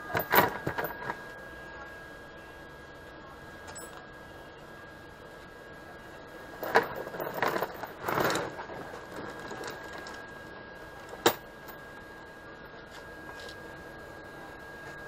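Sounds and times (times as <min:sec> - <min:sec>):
steel chain rattling: 0:06.6 - 0:08.6.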